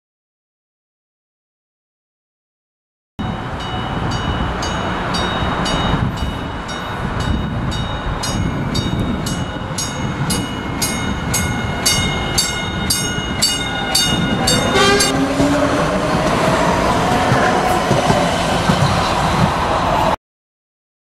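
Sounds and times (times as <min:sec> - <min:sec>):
warning bell ringing: 0:03.2 - 0:15.9
train rumbling past: 0:03.2 - 0:20.2.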